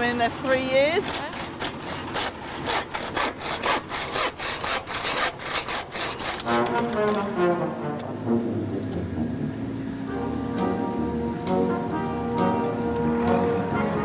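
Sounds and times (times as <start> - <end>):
hand saw strokes: 0.9 - 7.4
background music with held notes: 6.5 - 14.0.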